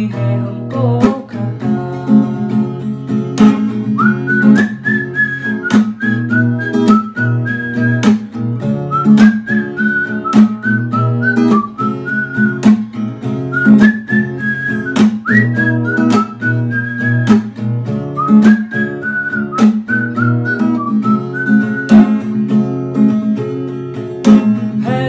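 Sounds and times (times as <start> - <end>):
plucked guitar: 0.0 - 25.0
whistled melody: 3.6 - 23.1.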